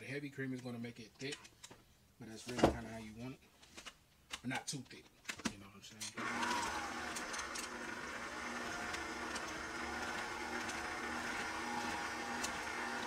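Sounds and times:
stand mixer motor whining: 6.2 - 13.0.

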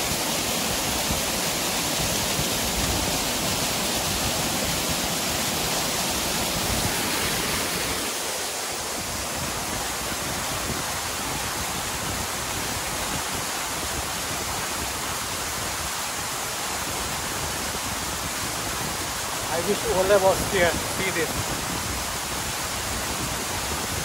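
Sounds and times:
waterfall roaring: 0.0 - 24.0.

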